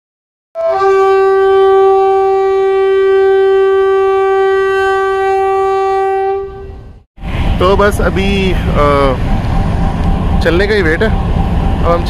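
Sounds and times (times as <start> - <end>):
train horn blast: 0.6 - 7.0.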